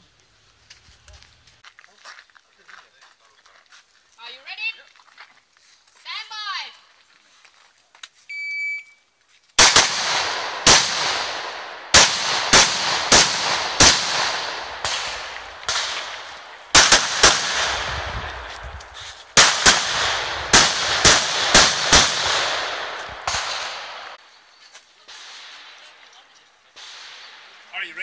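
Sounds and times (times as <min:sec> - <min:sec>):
shot timer beep: 0:08.3 - 0:09.0
rifle shots with echo: 0:09.6 - 0:24.2, 0:26.8 - 0:27.6.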